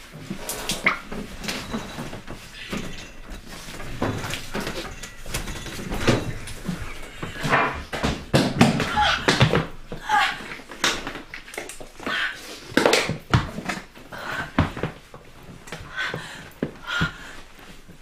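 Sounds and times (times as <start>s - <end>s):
knocks bumps and rustling: 0.1s - 12.0s.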